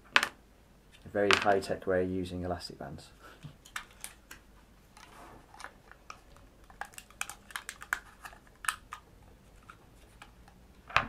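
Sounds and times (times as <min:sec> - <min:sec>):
plastic toy clicking and rattling: 0:05.6 - 0:09.0.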